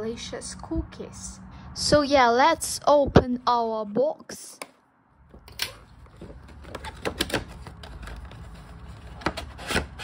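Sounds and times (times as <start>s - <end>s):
cardboard rubbing and rustling: 5.9s - 10.0s.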